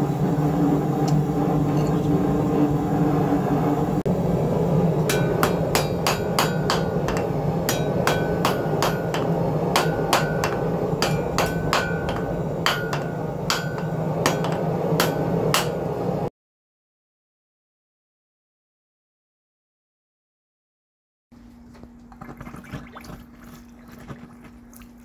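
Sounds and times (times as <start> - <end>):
steady low hum: 0.0 - 16.3
anvil ringing: 5.0 - 16.0
hammer striking hot steel on anvil: 5.0 - 16.3.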